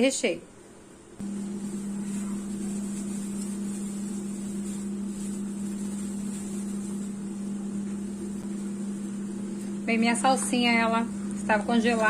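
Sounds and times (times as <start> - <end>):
electrical motor hum: 0.0 - 12.0.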